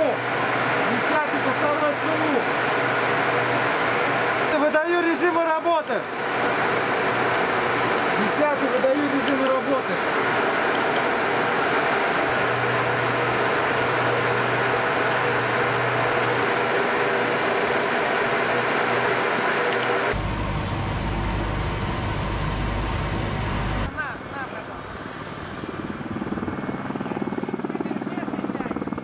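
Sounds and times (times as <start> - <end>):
cooling fans humming: 0.0 - 28.9
steady low rumble: 20.1 - 28.9.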